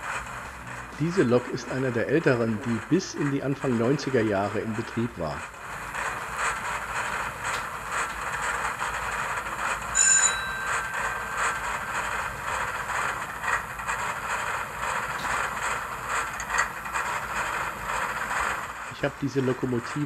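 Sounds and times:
model train motor humming: 0.0s - 20.0s
bell-like ringing tone: 9.9s - 12.5s.

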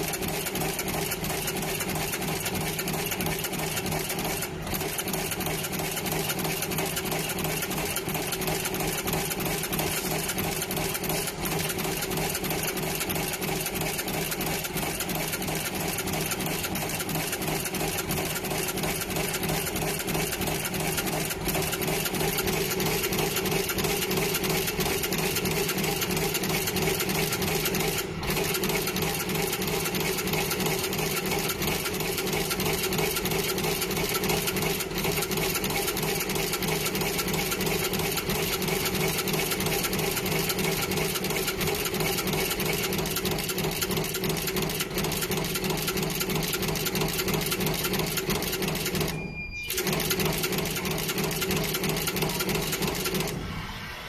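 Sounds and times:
machine mechanical clatter: 0.0s - 54.0s.

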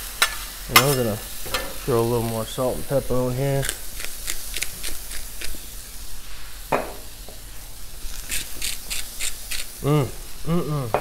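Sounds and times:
vegetables sizzling on a griddle: 0.0s - 11.0s
pepper grinder crunching peppercorns: 3.6s - 5.6s, 8.1s - 9.8s.

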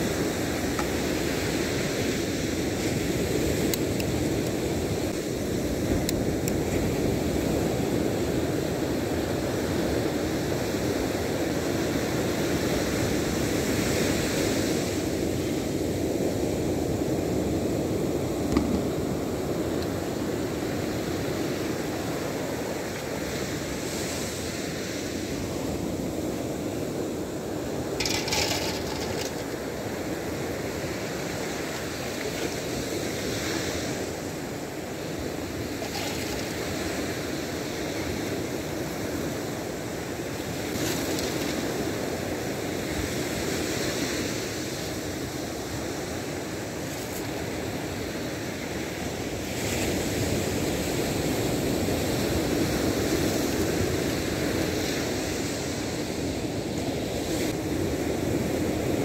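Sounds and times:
surf breaking on beach: 0.0s - 45.0s.

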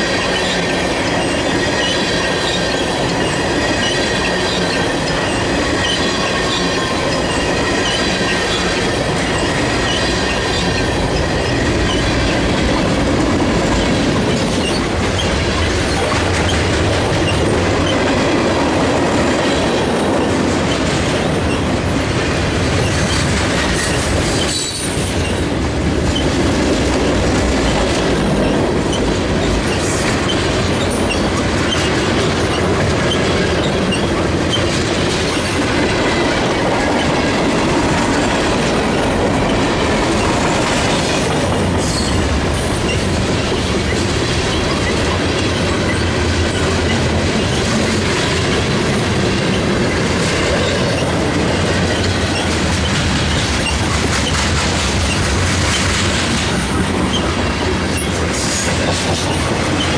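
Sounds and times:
train wheels rolling on rails: 0.0s - 59.9s.

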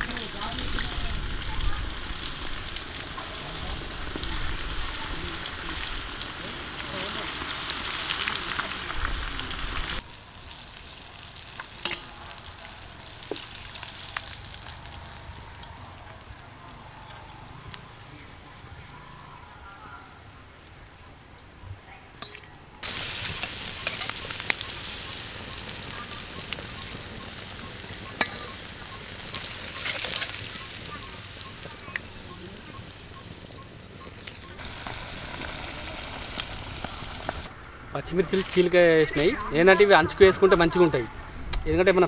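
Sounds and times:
food deep-frying in oil: 0.0s - 16.4s, 22.2s - 37.5s.

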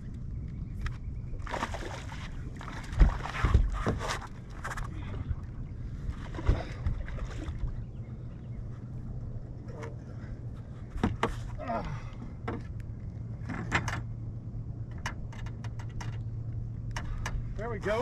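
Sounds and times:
knocks on boat: 2.9s - 4.0s.

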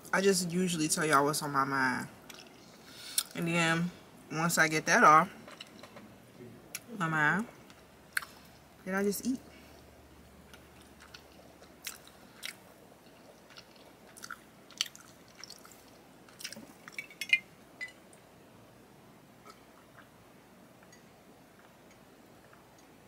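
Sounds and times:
chewing and lip smacks: 10.5s - 17.0s.

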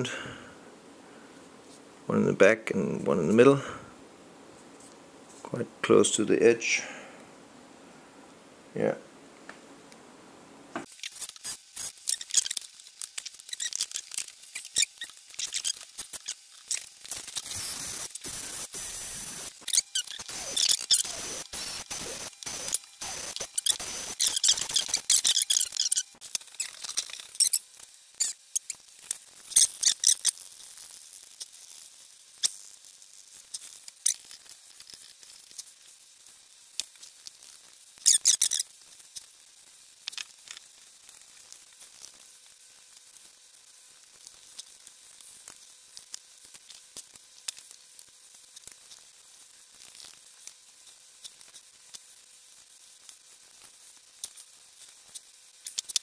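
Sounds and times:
scratchy clicks and rubbing: 10.8s - 35.7s
foil and gloves crackling: 10.9s - 56.0s.

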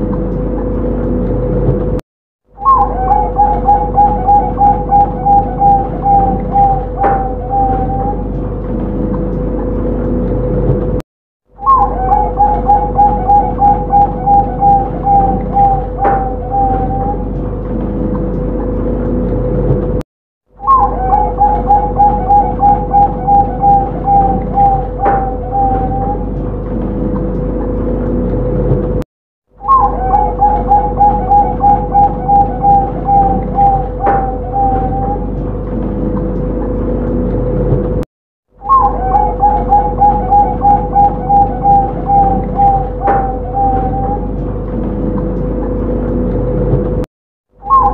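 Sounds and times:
dove cooing: 2.6s - 8.4s, 11.6s - 17.5s, 20.6s - 26.4s, 29.6s - 35.4s, 38.6s - 44.4s
steady hum: 2.6s - 11.0s, 29.7s - 38.0s, 38.6s - 47.0s.

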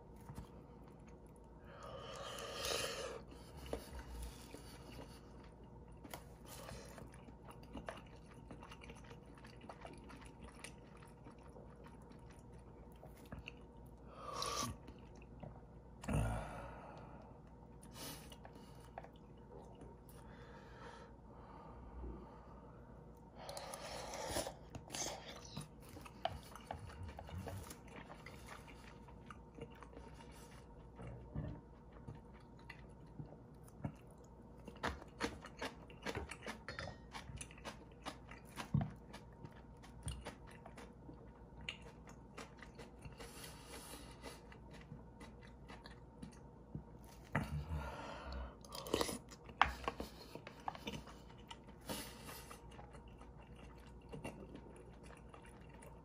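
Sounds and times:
chewing and biting: 3.2s - 16.1s, 23.5s - 47.7s, 48.6s - 56.0s.

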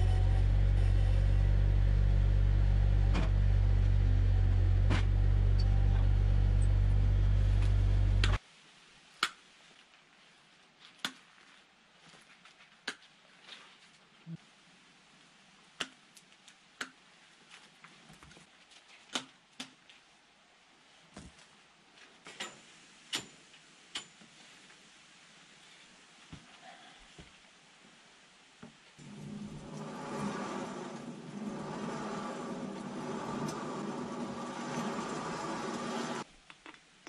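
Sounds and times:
diesel engine running: 0.0s - 8.4s, 29.0s - 36.2s.

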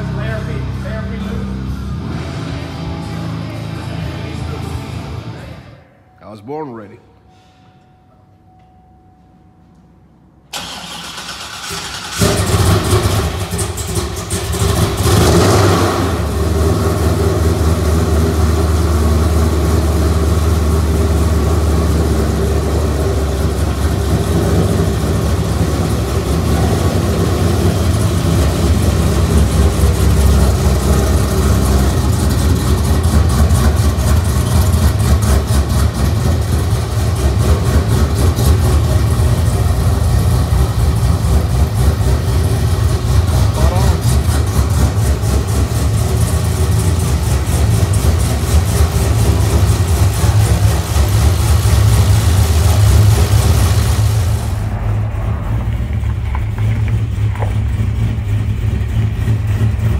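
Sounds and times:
car engine revving and idling: 0.0s - 5.8s, 10.5s - 59.9s
starter cranking engine: 10.5s - 15.4s.

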